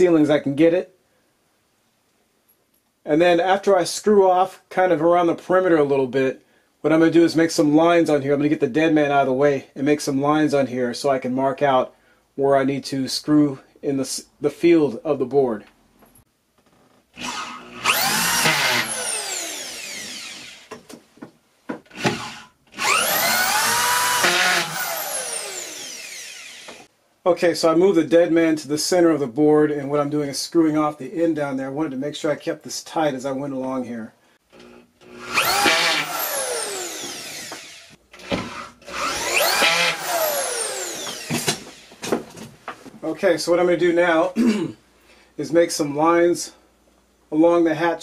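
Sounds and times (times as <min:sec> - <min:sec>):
screw gun motor whining: 0:17.2 - 0:20.7, 0:21.9 - 0:26.9, 0:34.5 - 0:42.0.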